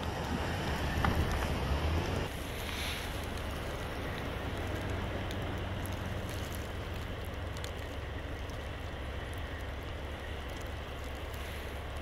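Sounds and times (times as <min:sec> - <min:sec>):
blizzard wind rushing: 0:00.0 - 0:12.0
truck engine idling: 0:00.0 - 0:12.0.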